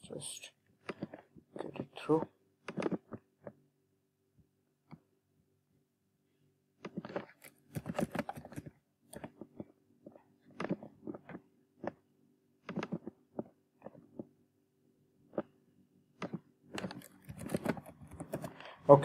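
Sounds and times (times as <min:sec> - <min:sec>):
computer keyboard typing: 0:12.6 - 0:13.5, 0:16.2 - 0:18.6.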